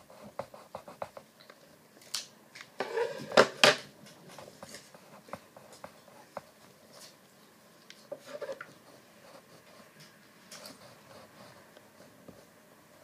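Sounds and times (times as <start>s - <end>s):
pencil scratching on paper: 0.0s - 1.2s, 10.6s - 12.6s.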